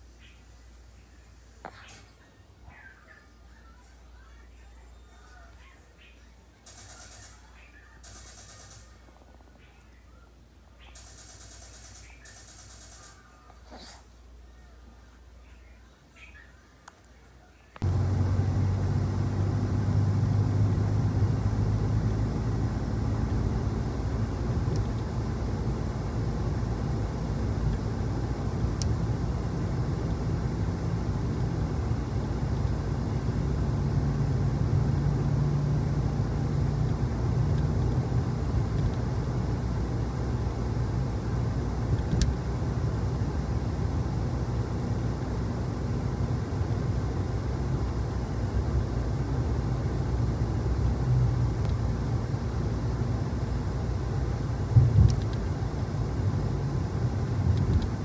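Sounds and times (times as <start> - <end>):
car engine and road rumble: 17.8 - 58.0
low hum: 17.8 - 58.0.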